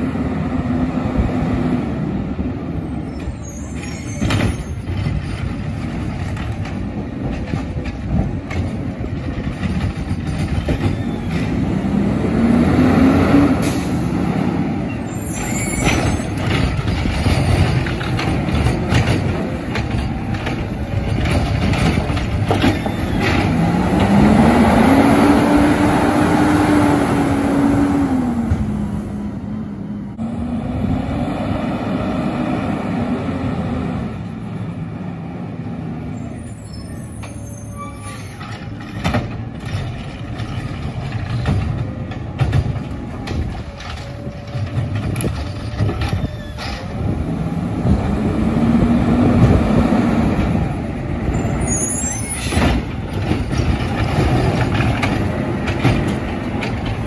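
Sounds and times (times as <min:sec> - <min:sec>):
air brakes hissing: 0:13.6 - 0:14.2
garbage truck engine revving: 0:23.2 - 0:28.9.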